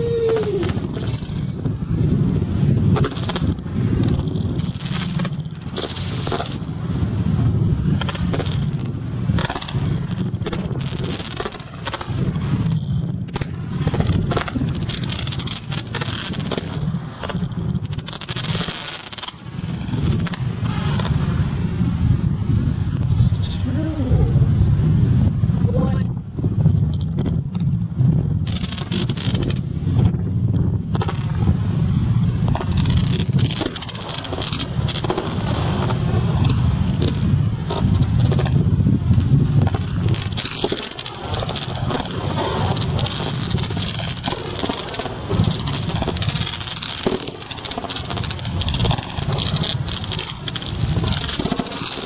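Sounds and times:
high firework whistle: 0.0 - 2.3, 5.7 - 7.1
fireworks crackling and popping: 0.0 - 52.0
wind rumbling on microphone: 0.0 - 52.0.

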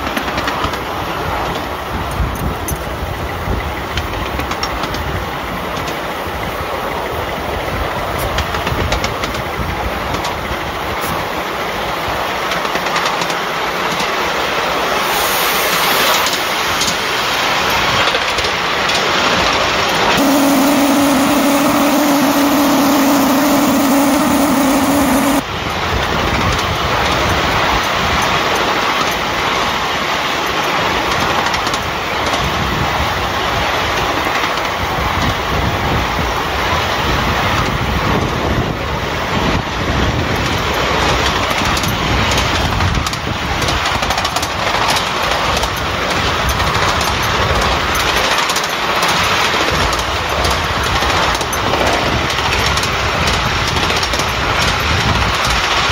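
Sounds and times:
miniature steam locomotive running: 0.0 - 19.5, 39.9 - 55.9
strong steady tone: 20.2 - 25.4
wheels rushing on rails: 20.2 - 25.4.

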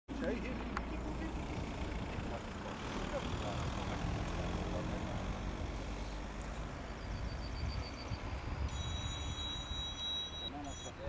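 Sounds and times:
wind buffeting microphone: 6.6 - 10.0.

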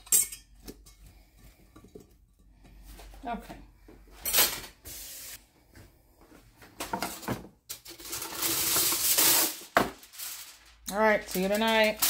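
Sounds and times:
cling wrap rustling: 7.9 - 12.0.

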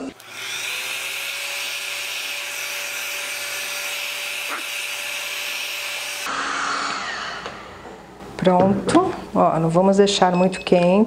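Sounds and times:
heat gun air hiss: 0.0 - 6.3
motor hum: 0.0 - 8.5.

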